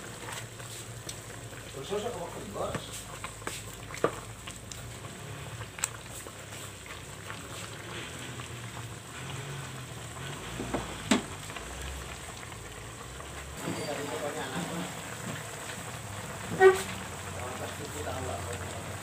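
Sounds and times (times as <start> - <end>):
food simmering and sizzling: 0.0 - 19.0
spatula stirring in pan: 2.6 - 12.2, 16.3 - 17.1.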